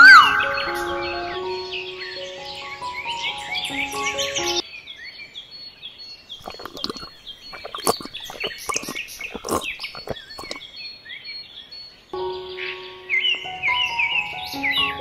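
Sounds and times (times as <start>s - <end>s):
birds chirping: 0.0s - 15.0s
water splashing into pond: 6.4s - 10.6s.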